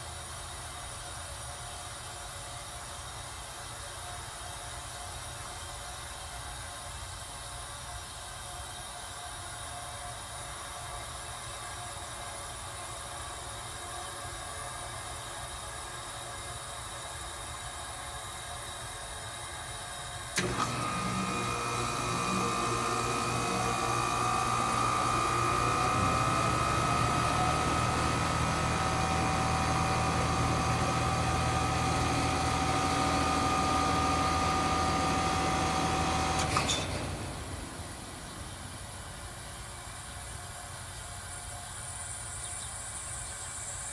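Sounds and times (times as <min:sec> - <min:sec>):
heat pump humming and whining: 0:00.0 - 0:43.9
heat pump switch click: 0:20.4 - 0:38.5.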